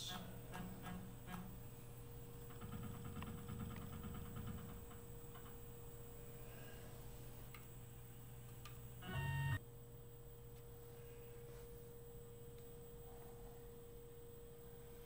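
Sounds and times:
electrical hum: 0.0s - 15.0s
brief buzzy tone: 9.0s - 9.6s.

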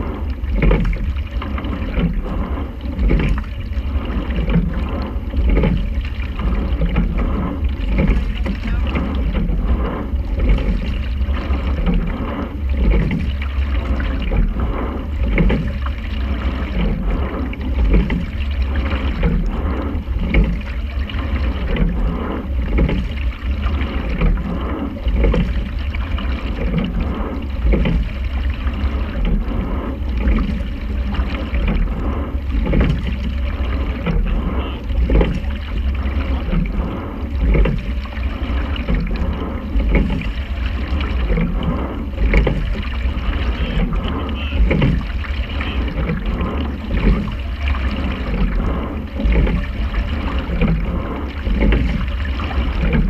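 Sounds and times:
low rumble: 0.0s - 53.0s
rhythmic rowing strokes: 0.0s - 53.0s
water rushing past hull: 0.0s - 53.0s.

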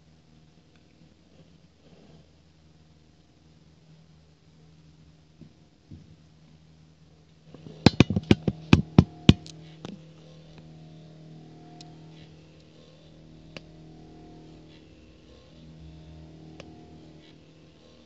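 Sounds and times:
stepper motor humming: 7.5s - 18.0s
sharp knocks: 7.9s - 9.5s.

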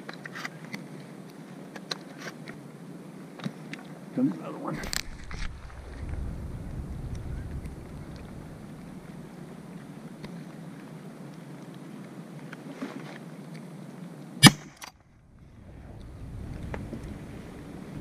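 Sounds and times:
wind hiss: 0.5s - 18.0s
shotgun shot: 14.4s - 14.9s.

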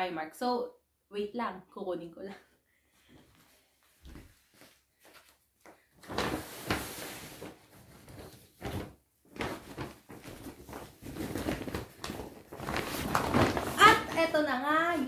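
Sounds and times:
knocks and rustling of shopping bag: 6.0s - 15.0s.

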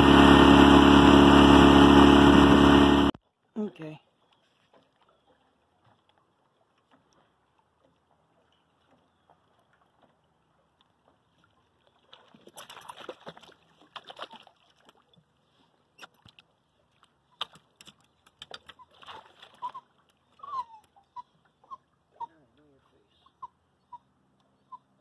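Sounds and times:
fish splashing in water: 11.9s - 15.3s, 16.0s - 20.4s
dog whining: 20.4s - 21.8s.

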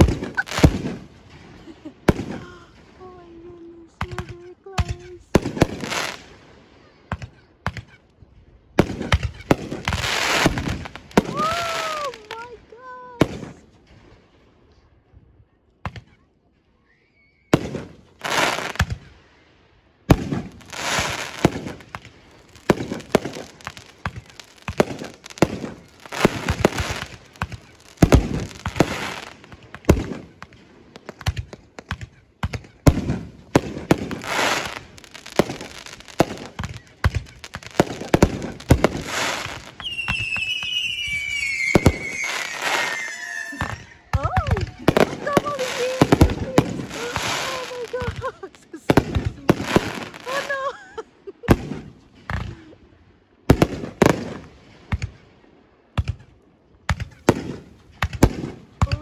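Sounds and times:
fireworks bangs: 0.0s - 8.0s, 8.7s - 14.4s, 17.5s - 52.7s, 53.5s - 55.2s, 56.9s - 59.0s
firework whistling: 9.2s - 12.4s, 16.8s - 19.1s, 20.6s - 30.2s, 33.7s - 48.0s.

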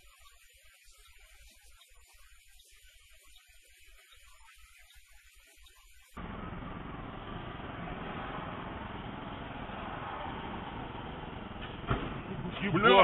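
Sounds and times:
car interior road noise: 6.2s - 12.9s.

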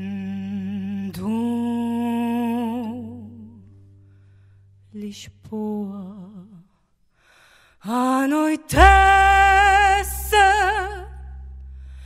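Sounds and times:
woman singing with vibrato: 0.0s - 3.6s, 5.0s - 6.6s, 7.8s - 11.4s
deep bass note thump: 8.8s - 12.0s.

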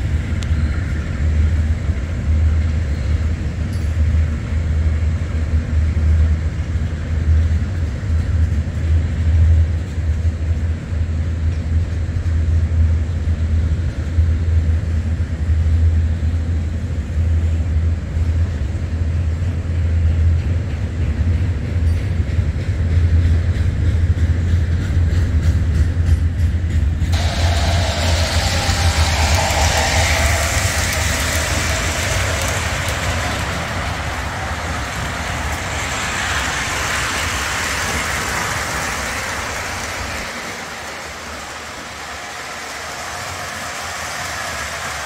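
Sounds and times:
low hum: 27.2s - 38.0s
toy train motor and wheel drone: 27.2s - 40.2s.

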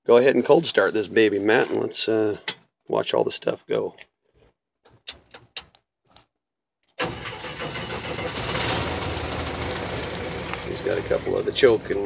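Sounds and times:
car engine starting and running: 7.0s - 12.0s.

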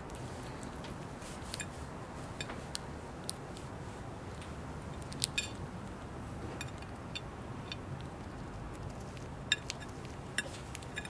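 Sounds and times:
low room hum: 0.0s - 11.0s
beak clicking on china plate: 9.1s - 11.0s.

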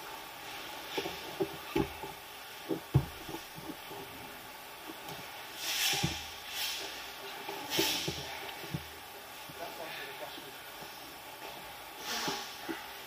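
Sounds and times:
thumps and scuffs on mat: 0.9s - 4.2s, 5.1s - 6.6s
short hissing rush: 5.6s - 7.1s.

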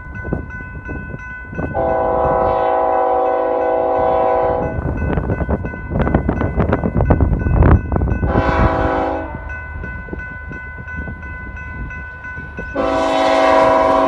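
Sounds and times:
crossing warning bell ringing: 0.0s - 14.0s
locomotive air horn blast: 1.7s - 4.8s, 8.3s - 9.5s, 12.7s - 14.0s.

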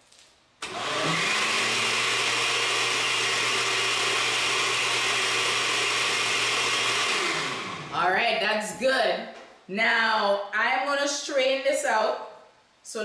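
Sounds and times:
blender whirring: 0.6s - 8.1s.

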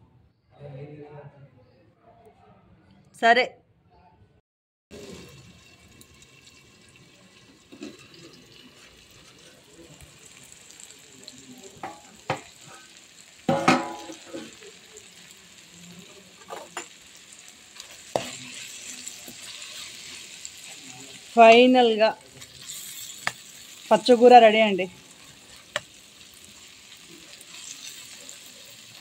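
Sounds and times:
vegetables sizzling in oil: 4.9s - 29.0s
metal pan and utensil clanks: 7.6s - 9.5s, 11.8s - 14.8s, 16.4s - 17.1s, 17.8s - 20.9s, 22.3s - 23.8s.

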